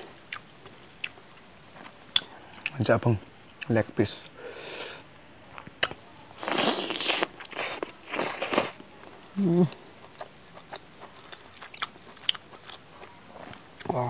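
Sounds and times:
person humming: 9.4 - 9.8.

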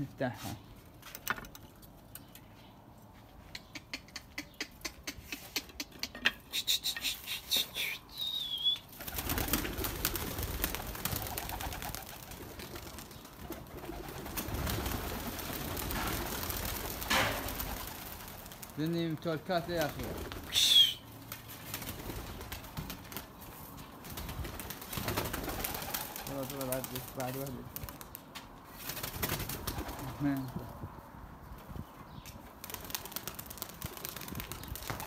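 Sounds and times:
pigeon wings flapping: 8.9 - 18.8, 19.8 - 23.3, 24.0 - 28.2, 28.8 - 30.5, 32.6 - 35.0.

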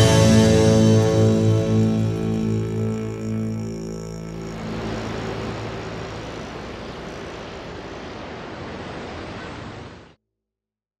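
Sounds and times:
music: 0.0 - 5.7
steady rushing noise: 4.3 - 10.2.

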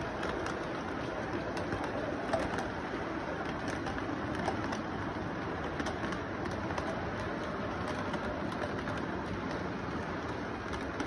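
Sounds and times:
faint irregular clicks: 0.0 - 11.0
model train wheels whirring: 0.0 - 11.0.

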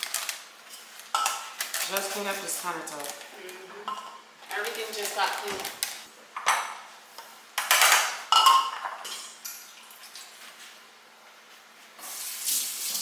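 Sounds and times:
metal utensils clattering on stone: 7.6 - 9.2.

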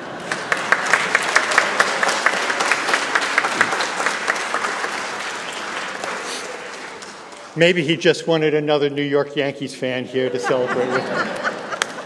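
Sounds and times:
crowd applauding: 0.0 - 7.7.

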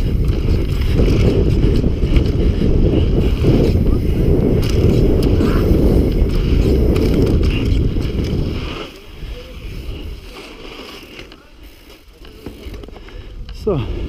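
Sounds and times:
bike tyres rolling on dirt: 0.0 - 14.0
wind buffeting microphone: 0.0 - 14.0.

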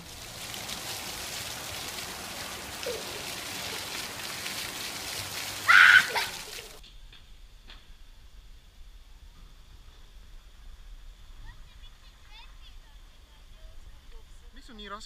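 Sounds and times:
fountain jets spraying on paving: 0.0 - 6.8
faint outdoor background: 0.0 - 15.0
child squealing: 2.8 - 3.9, 5.6 - 6.7.

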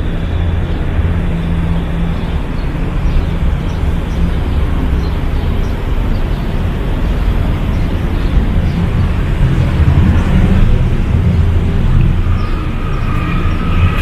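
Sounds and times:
engine hum: 0.0 - 14.0
low rumble of traffic: 0.0 - 14.0.

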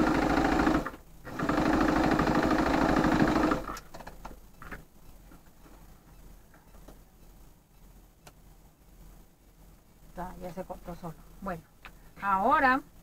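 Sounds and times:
sewing machine stitching: 0.0 - 3.8.

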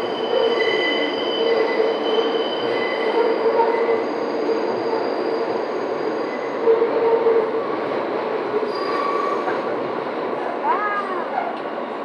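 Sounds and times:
high-pitched wheel squeals: 0.0 - 7.4, 8.7 - 9.6
subway wheels rumbling on rail: 0.0 - 12.0.

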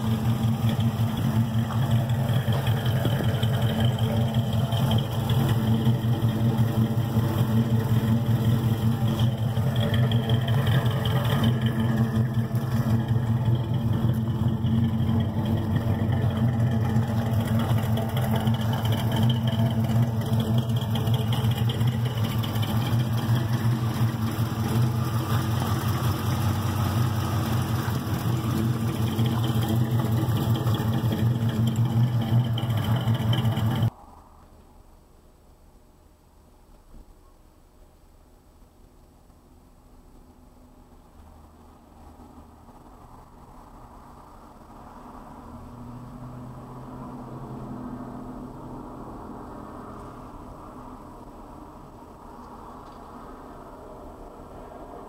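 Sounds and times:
truck engine idling: 0.0 - 33.9.

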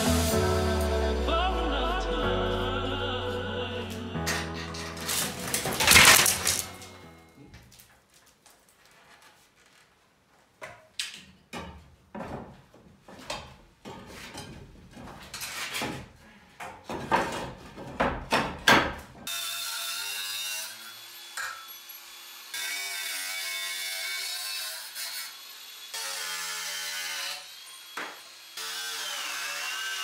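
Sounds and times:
wood clattering: 4.3 - 7.0.

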